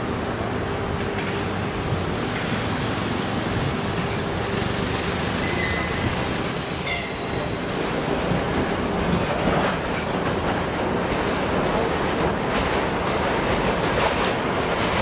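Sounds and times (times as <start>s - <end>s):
train wheels rumbling on rails: 0.0s - 15.0s
wheel squeals: 5.4s - 7.7s.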